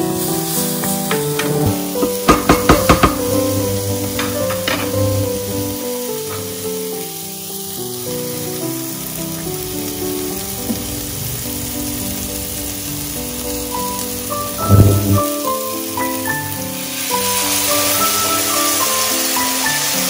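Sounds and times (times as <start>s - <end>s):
oil sizzling in a pan: 0.0s - 20.0s
background music: 0.8s - 6.6s
loud thump: 1.4s - 5.5s.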